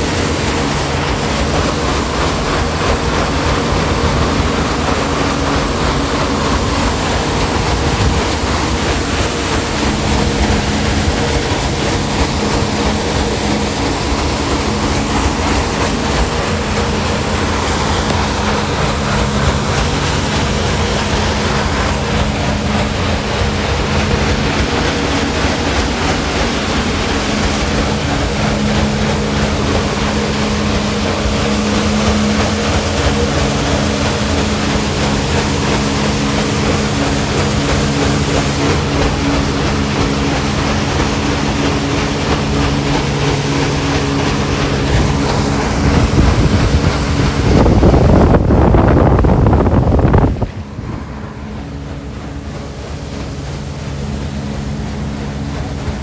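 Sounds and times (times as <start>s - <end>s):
low machinery hum: 0.0s - 56.0s
paddle wheel splashing water: 0.0s - 56.0s.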